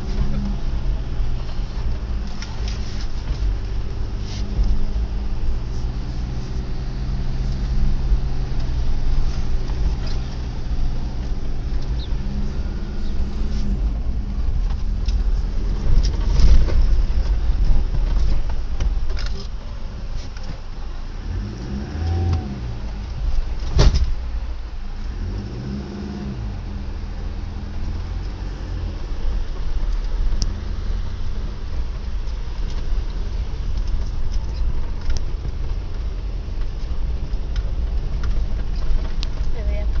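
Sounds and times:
vehicle engine running: 0:00.0 - 0:40.0
knocks and rattles from bumps: 0:27.5 - 0:40.0.

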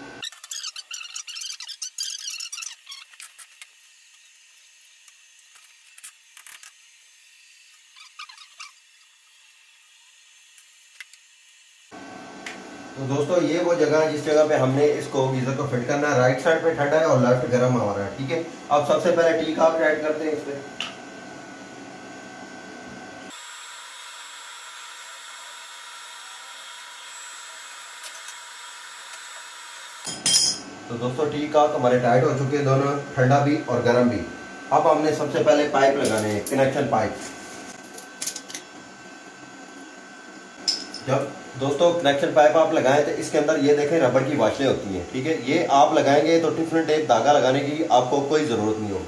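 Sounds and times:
small squeaks: 0:00.2 - 0:04.3, 0:07.8 - 0:09.2.

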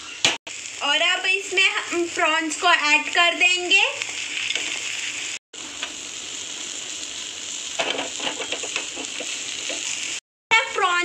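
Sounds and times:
oil and vegetables sizzling in a pan: 0:00.0 - 0:11.0
spatula scraping and stirring: 0:07.8 - 0:10.2.

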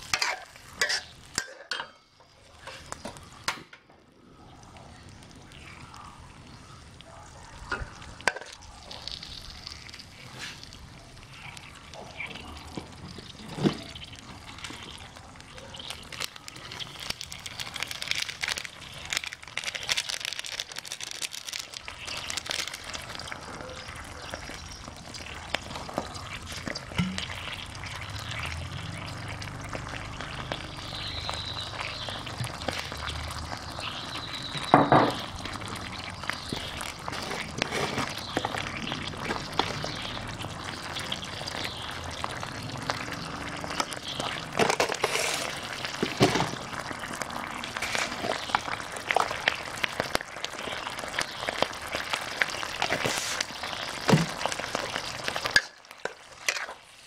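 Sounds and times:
sauce bubbling and sizzling: 0:00.0 - 0:57.0.

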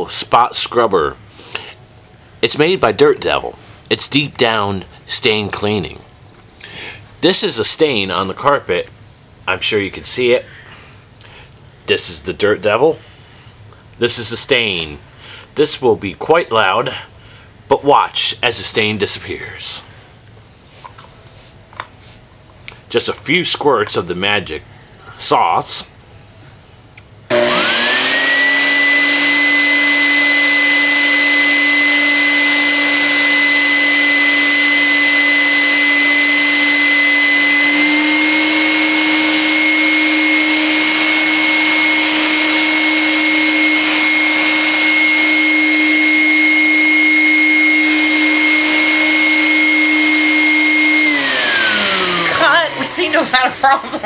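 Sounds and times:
carpet cleaner motor whine: 0:27.3 - 0:53.5.

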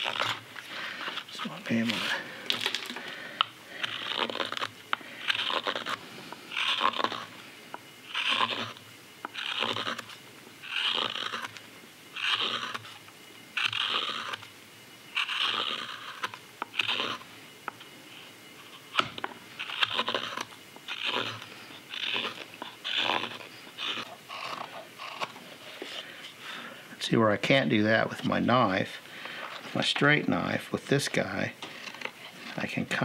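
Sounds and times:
knife scraping wood: 0:00.0 - 0:02.7, 0:03.4 - 0:07.4, 0:08.0 - 0:13.0, 0:13.6 - 0:14.5, 0:15.1 - 0:26.4.

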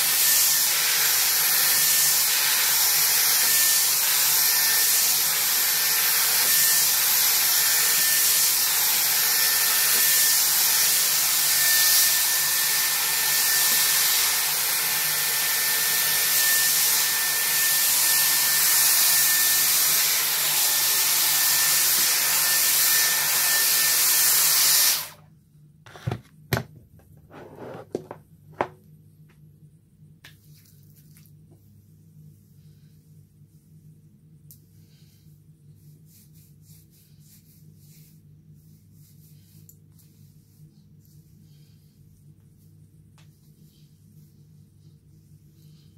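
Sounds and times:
hair styler blowing air: 0:00.0 - 0:25.2.

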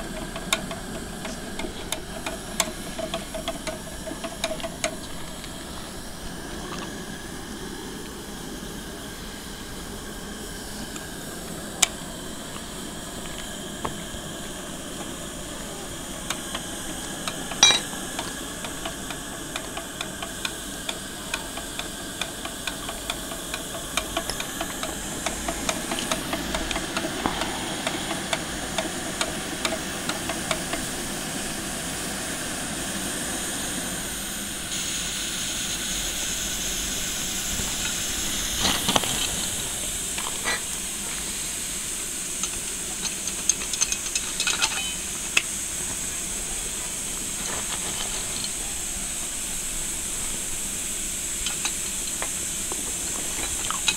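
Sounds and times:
steam locomotive hissing: 0:00.0 - 0:53.9
metallic clanks: 0:16.3 - 0:20.3, 0:42.4 - 0:45.5.

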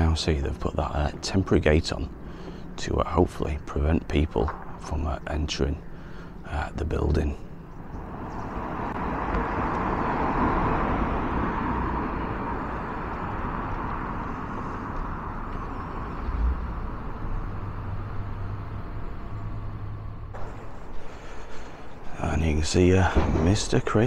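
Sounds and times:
low steady hum: 0:00.0 - 0:24.0
vehicle passing: 0:07.4 - 0:24.0.

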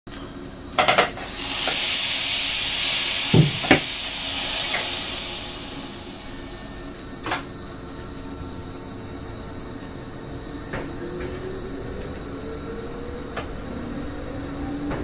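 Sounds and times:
compressed air hissing: 0:00.8 - 0:07.5.

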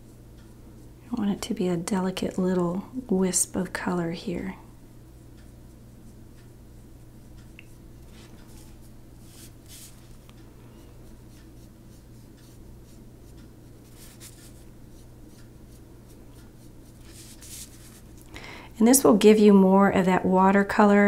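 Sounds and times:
paintbrush strokes on paper: 0:05.4 - 0:18.2.

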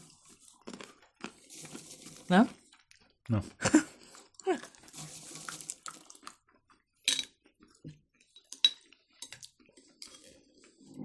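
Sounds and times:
peanuts clattering in glass dish: 0:01.4 - 0:02.5, 0:04.5 - 0:06.4.

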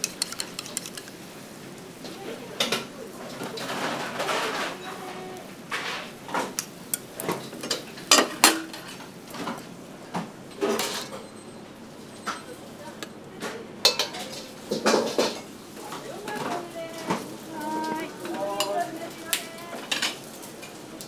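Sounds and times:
pans dishes and utensils clinking: 0:02.6 - 0:06.6, 0:07.2 - 0:09.6, 0:10.6 - 0:11.5, 0:13.4 - 0:19.2, 0:19.8 - 0:20.8.

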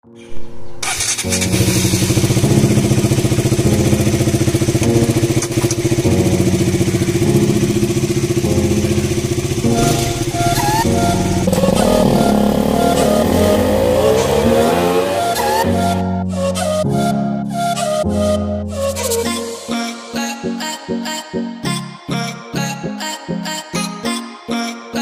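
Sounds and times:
motorcycle engine running: 0:00.9 - 0:15.6.

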